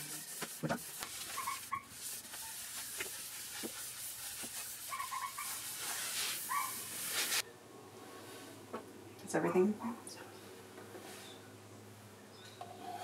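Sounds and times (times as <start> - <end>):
towel rubbing on wood: 0.0 - 7.4.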